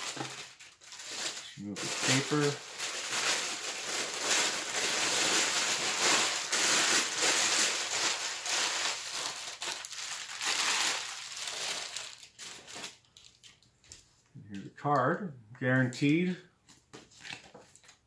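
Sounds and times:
tissue paper crinkling: 0.0s - 14.0s.

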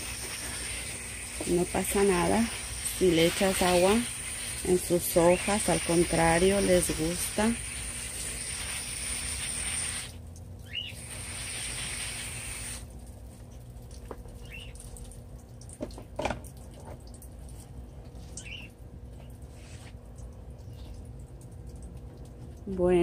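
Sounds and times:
water spray hissing: 0.0s - 12.9s
bird chirping: 10.6s - 11.1s, 18.4s - 18.7s.

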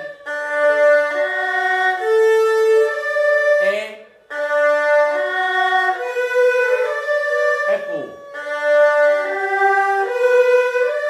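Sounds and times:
erhu bowed arpeggio: 0.0s - 11.0s.

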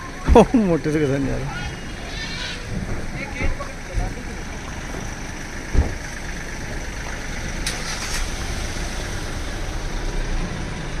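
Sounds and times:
car engine idling: 0.0s - 11.0s
sharp thump: 5.7s - 6.1s.

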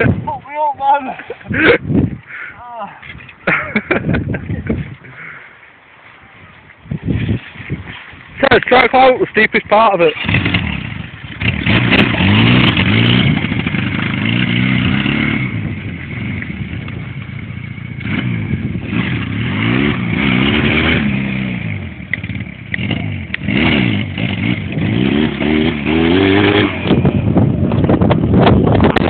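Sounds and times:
quad bike engine revving: 10.0s - 29.0s.

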